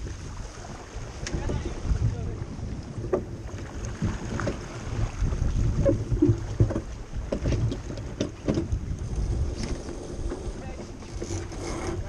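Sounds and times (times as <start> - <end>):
water slapping along boat hull: 0.0 - 12.0
wind rumbling on microphone: 0.0 - 12.0
splashes and knocks: 0.6 - 8.8.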